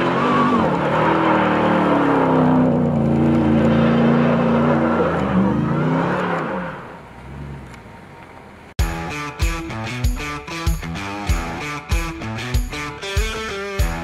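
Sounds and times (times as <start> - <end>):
truck engine revving high: 0.0 - 7.8
rock music: 8.8 - 14.0.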